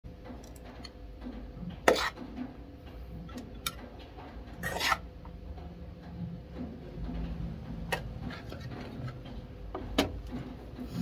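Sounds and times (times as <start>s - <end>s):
steady low hum: 0.1s - 11.0s
metal spoon scraping pot: 1.8s - 2.2s, 4.6s - 5.1s, 7.9s - 9.2s.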